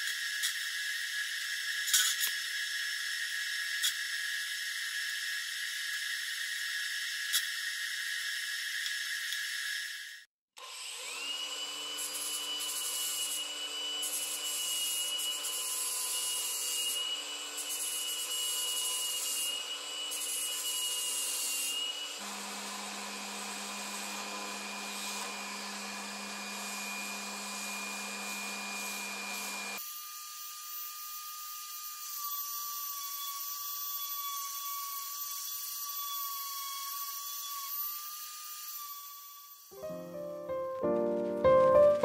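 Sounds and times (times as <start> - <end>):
angle grinder grinding steel: 11.1 - 29.8
orbital sander on metal: 22.2 - 29.8.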